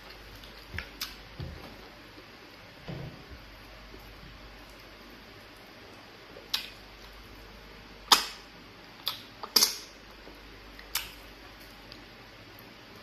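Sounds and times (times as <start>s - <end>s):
wet mouth smacks and clicks: 9.0s - 9.9s, 10.8s - 11.2s.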